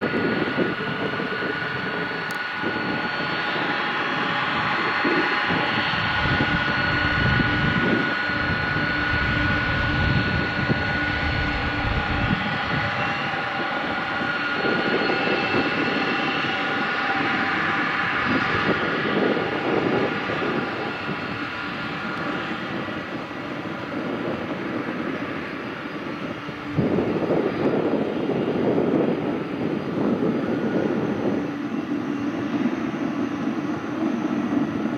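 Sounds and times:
jet engines whining: 0:00.0 - 0:34.9.

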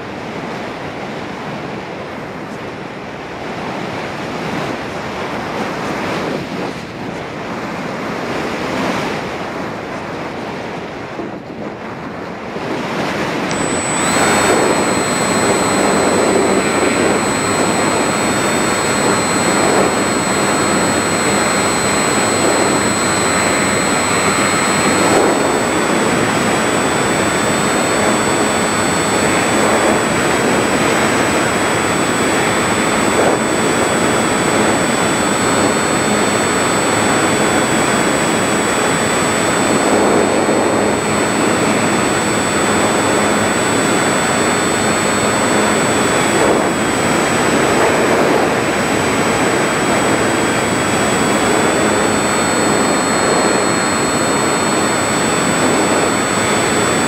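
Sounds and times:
propeller and wind rush: 0:00.0 - 0:57.0
electric motor whine: 0:13.4 - 0:57.0.

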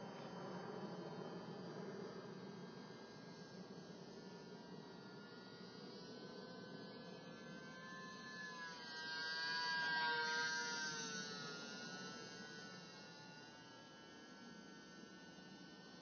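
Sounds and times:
model plane electric motor whining: 0:07.6 - 0:13.1.

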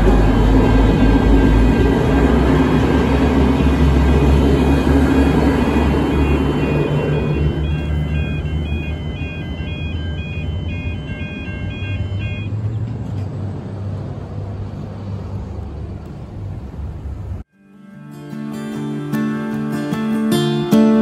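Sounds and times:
level crossing warning bells: 0:00.0 - 0:12.8
diesel railcar rumble: 0:00.0 - 0:17.5
guitar music: 0:17.5 - 0:21.0.

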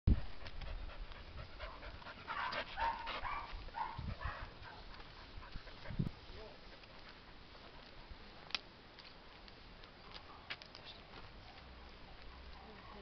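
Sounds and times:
dog panting: 0:00.2 - 0:06.1.

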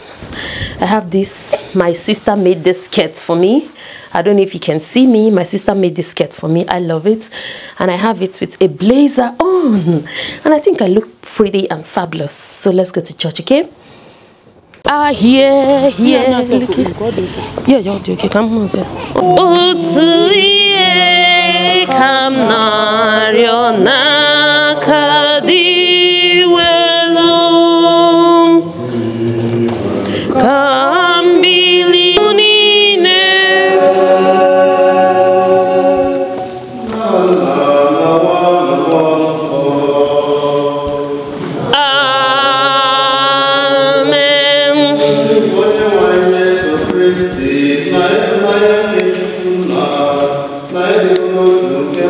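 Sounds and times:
lower steady vocal part: 0:13.8 - 0:52.0
person singing hymn: 0:18.9 - 0:52.0
solo voice holding wavering note: 0:19.1 - 0:20.3.

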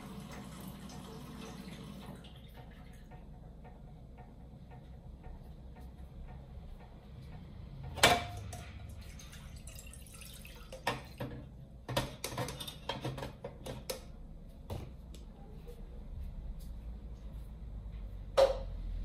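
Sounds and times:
water splashing into a pot: 0:08.1 - 0:11.5.

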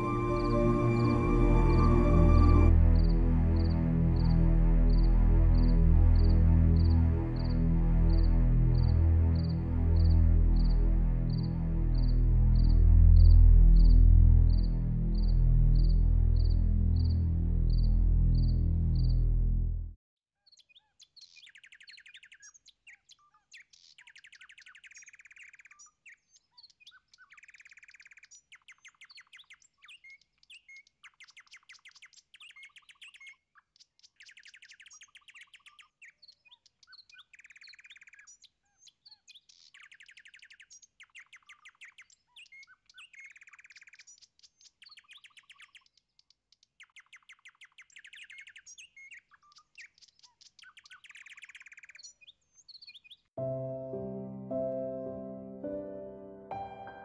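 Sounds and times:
small birds chirping: 0:20.4 - 0:53.4.

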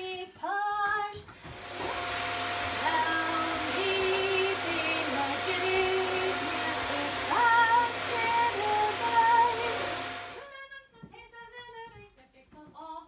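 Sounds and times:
woman singing: 0:00.0 - 0:01.4, 0:02.8 - 0:13.0
vacuum cleaner whining: 0:01.3 - 0:10.5.

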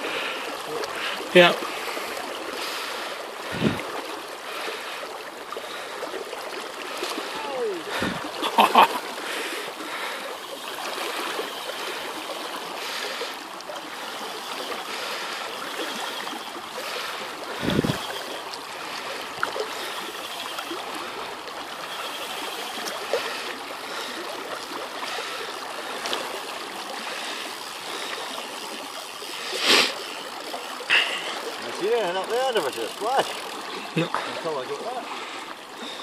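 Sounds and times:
river current over gravel: 0:00.0 - 0:36.0.

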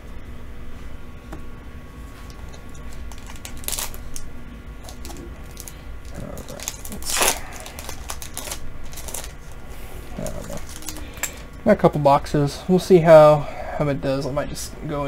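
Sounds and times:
foil pack crinkling: 0:02.2 - 0:09.6, 0:10.2 - 0:11.5
foil ripping: 0:02.8 - 0:04.2, 0:04.8 - 0:09.6, 0:10.2 - 0:11.2.

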